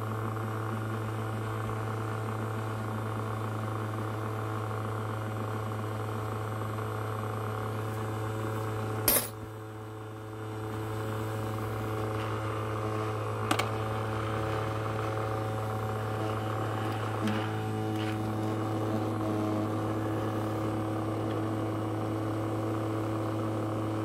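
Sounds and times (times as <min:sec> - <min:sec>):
ultrasonic cleaner humming: 0:00.0 - 0:24.0
coin dropping into tank: 0:09.1 - 0:09.4.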